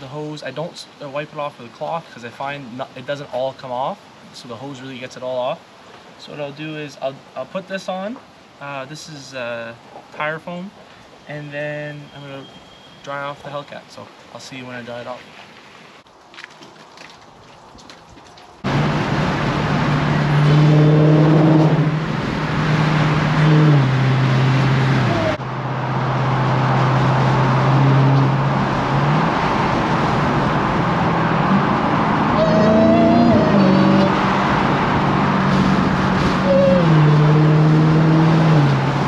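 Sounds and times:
tyre and road noise: 9.8 - 39.0
car engine drone: 18.6 - 39.0
supercharger whine: 18.7 - 39.0.

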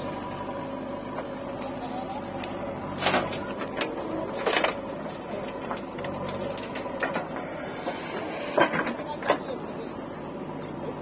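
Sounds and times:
diesel engine running: 0.0 - 11.0
knocks and clatters of soil loading: 1.1 - 9.5.

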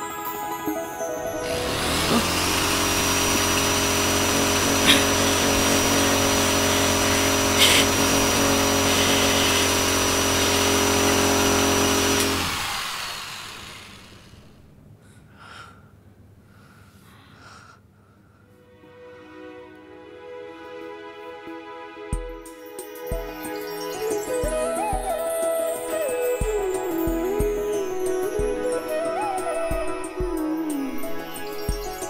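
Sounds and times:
electric motor whirring: 1.4 - 14.7.

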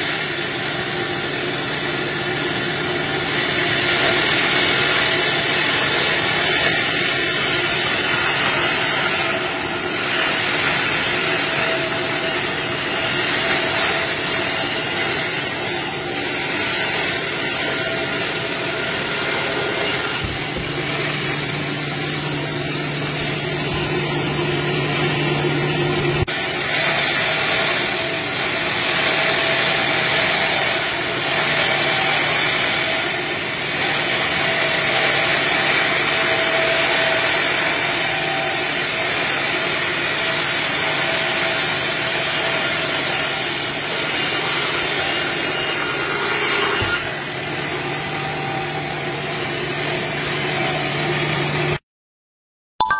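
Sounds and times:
band sawmill sawing through log: 0.0 - 51.8.

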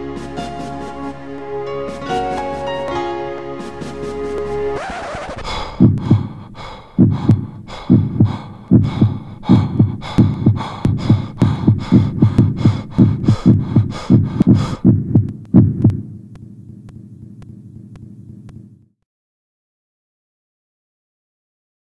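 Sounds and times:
heartbeat thumps: 5.5 - 18.9.

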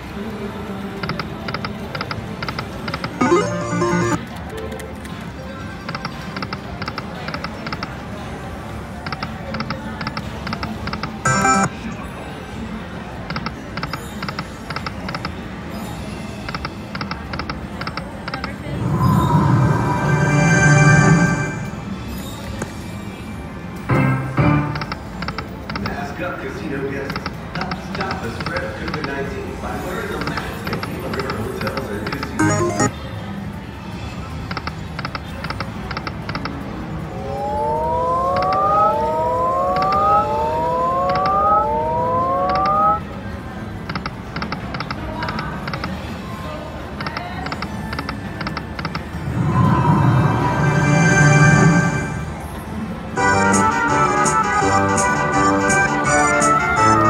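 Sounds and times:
slot machine electronic ticks: 1.0 - 4.3, 9.1 - 11.7, 30.2 - 32.9, 37.2 - 43.0
casino background: 1.5 - 5.0, 10.9 - 11.7, 30.2 - 32.9
rising electronic tones: 3.2 - 4.2, 11.3 - 11.7, 18.7 - 21.9, 32.4 - 32.9, 37.1 - 43.0, 49.2 - 52.4
slot machine win sound: 3.2 - 4.3, 11.3 - 11.9, 18.9 - 21.9, 32.2 - 33.0, 37.1 - 43.0, 53.2 - 57.0.

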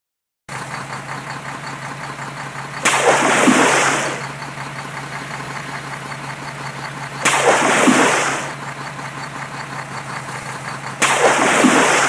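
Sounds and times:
engine-like hum: 0.5 - 12.0
toy truck splashing into water: 2.8 - 6.1, 7.1 - 9.5, 10.4 - 12.0.

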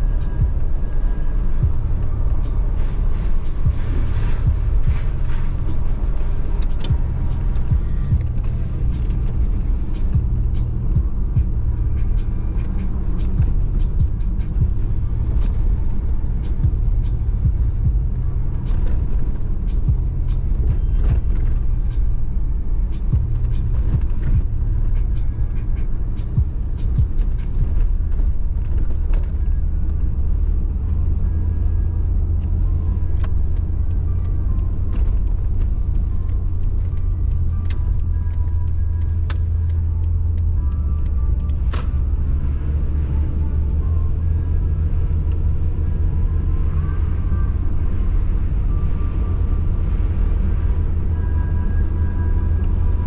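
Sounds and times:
car engine and road rumble: 0.0 - 53.0.

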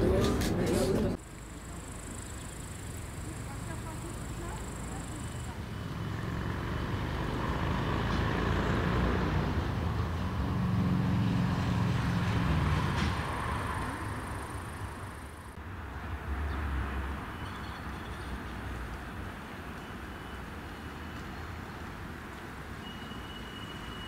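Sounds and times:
vehicle engine rumble passing: 0.0 - 18.9.

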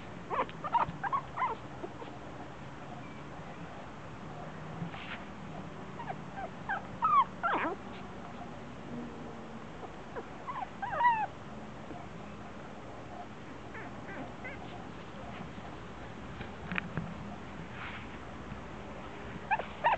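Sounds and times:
puppies yipping and squealing: 0.3 - 2.2, 6.0 - 8.4, 9.8 - 11.3, 13.2 - 15.4, 19.5 - 19.9.

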